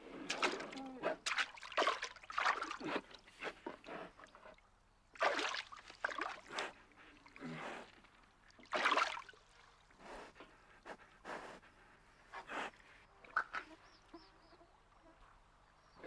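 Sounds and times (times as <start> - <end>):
water splashing and sloshing: 0.0 - 11.4, 12.4 - 15.9.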